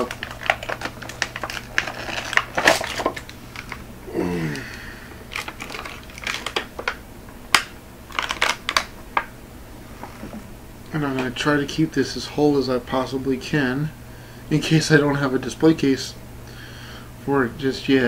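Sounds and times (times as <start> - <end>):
plastic packaging cracking: 0.0 - 3.8, 4.5 - 9.3
man murmuring: 4.1 - 5.0.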